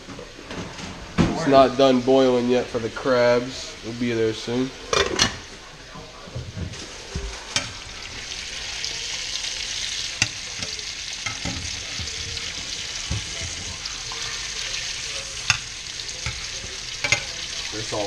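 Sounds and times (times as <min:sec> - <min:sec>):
fish sizzling in a pan: 0:06.7 - 0:18.0
metal tongs scraping a pan: 0:10.1 - 0:18.0.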